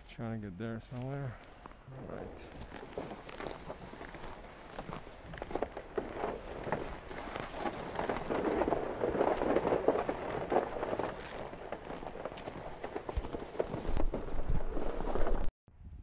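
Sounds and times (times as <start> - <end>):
boots crunching on snowy ice: 2.4 - 15.0.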